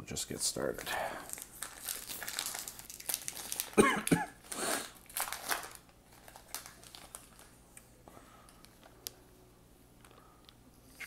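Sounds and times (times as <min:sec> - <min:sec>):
plastic wrapper tearing and crinkling: 0:00.7 - 0:07.6.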